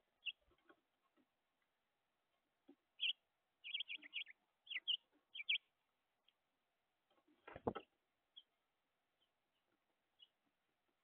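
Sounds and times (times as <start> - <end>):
high bird chirps: 3.0 - 5.7.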